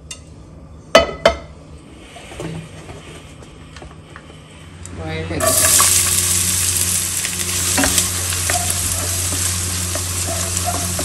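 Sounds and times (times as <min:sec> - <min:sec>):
pan clanking on stove grate: 0:07.6 - 0:11.0.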